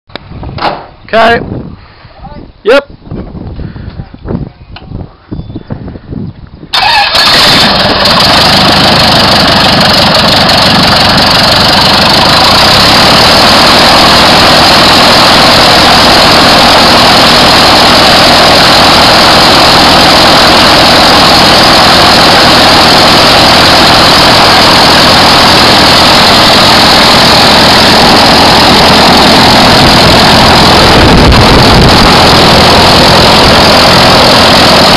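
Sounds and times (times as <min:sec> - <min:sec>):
aircraft engine running: 0:06.7 - 0:34.9
low rumble: 0:07.8 - 0:34.9.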